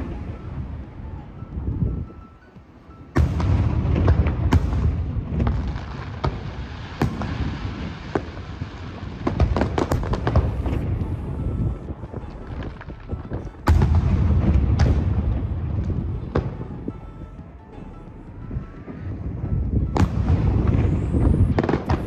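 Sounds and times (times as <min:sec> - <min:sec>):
firework bangs: 0:03.1 - 0:17.0, 0:18.9 - 0:22.0
low rumble: 0:09.2 - 0:22.0.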